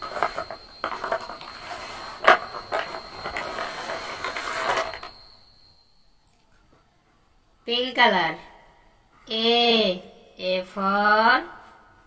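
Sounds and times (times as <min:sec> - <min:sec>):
pens rustling on paper: 0:00.0 - 0:05.1
plastic pens clattering: 0:00.0 - 0:05.1.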